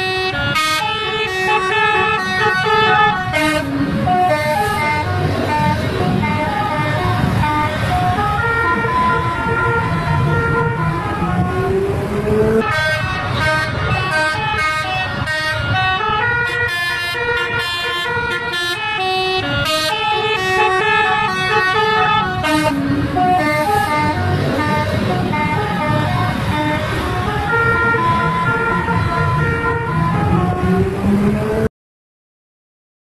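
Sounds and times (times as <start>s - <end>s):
air horn playing a tune: 0.0s - 7.6s, 12.6s - 30.4s
bus engine and road noise: 0.0s - 31.7s.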